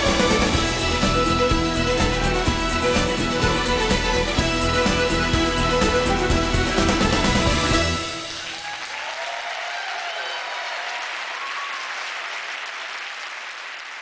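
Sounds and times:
dance music: 0:00.0 - 0:08.7
audience applause: 0:00.0 - 0:14.0
voices cheering: 0:00.0 - 0:14.0.

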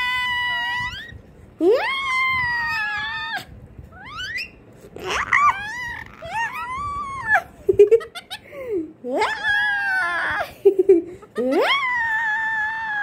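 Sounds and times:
parakeet squawking: 0:04.0 - 0:07.3.

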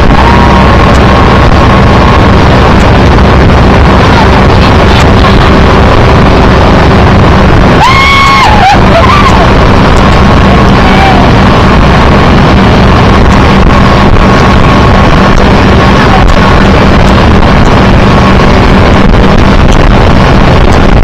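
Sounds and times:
motorboat running: 0:00.0 - 0:21.0
wind buffeting microphone: 0:00.0 - 0:21.0
person shouting: 0:07.8 - 0:09.5, 0:10.5 - 0:11.4.

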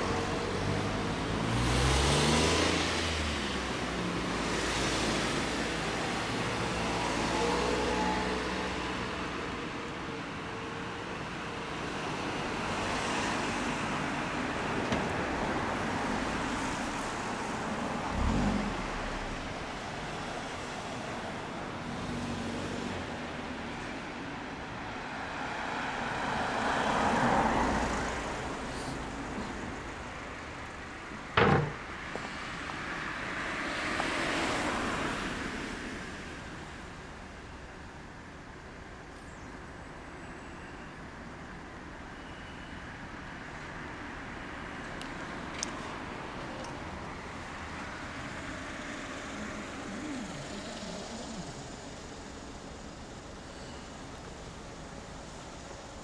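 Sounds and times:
passing road traffic: 0:00.0 - 0:56.0
loud short knock: 0:31.4 - 0:31.8
vehicle passing: 0:47.3 - 0:53.0.

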